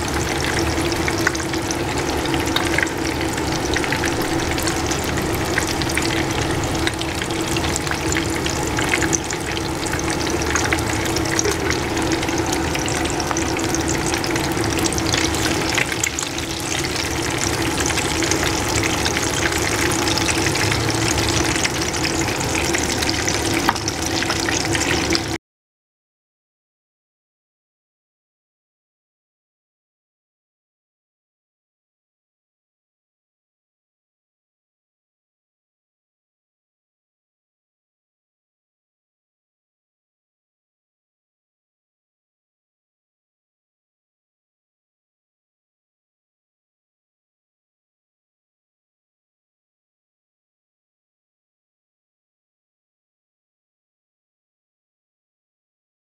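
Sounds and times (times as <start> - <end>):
oil sizzling in a pan: 0.0 - 25.4
steady hum: 0.0 - 25.4.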